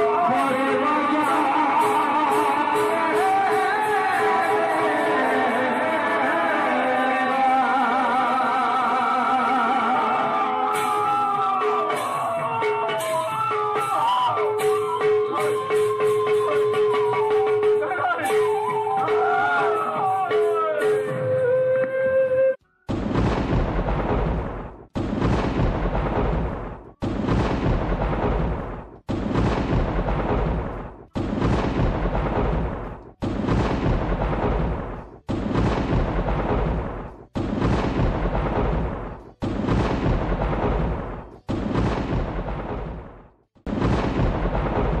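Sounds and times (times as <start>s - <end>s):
thunder crack and rumble: 22.9s - 45.0s.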